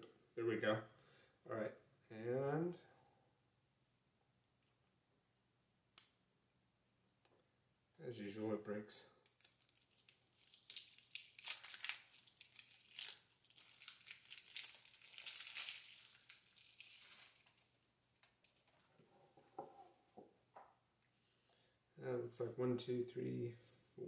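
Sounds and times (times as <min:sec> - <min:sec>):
cellophane crackling and crinkling: 0:09.3 - 0:19.0.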